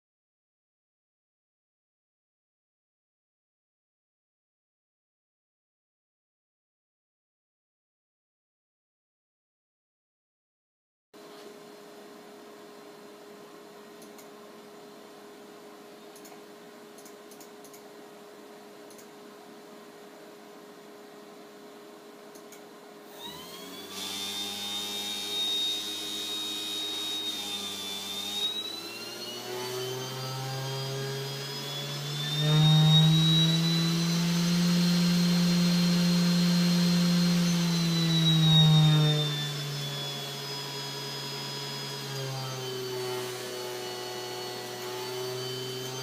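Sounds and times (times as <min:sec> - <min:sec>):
spindle motor whine: 0:23.1 - 0:46.0.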